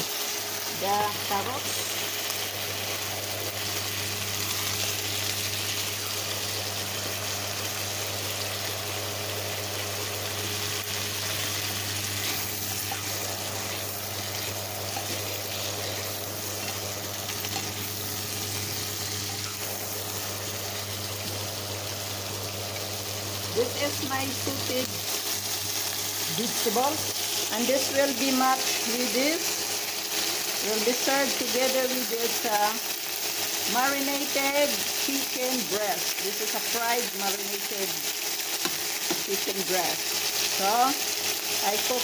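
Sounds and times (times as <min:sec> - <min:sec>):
vegetables sizzling in oil: 0:00.0 - 0:42.0
steady low hum: 0:00.7 - 0:28.0.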